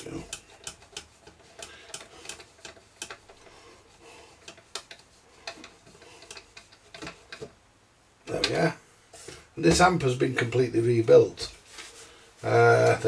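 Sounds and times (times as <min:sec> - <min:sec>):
hands clicking and tapping parts: 0:00.0 - 0:07.6.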